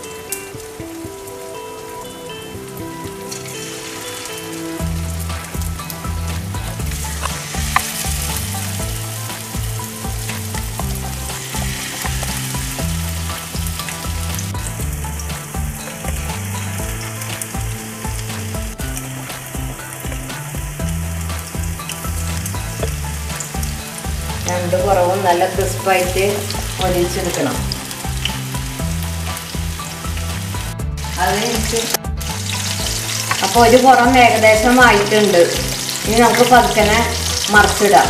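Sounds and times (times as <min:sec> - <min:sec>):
meat deep-frying sizzle: 0:00.0 - 0:38.0.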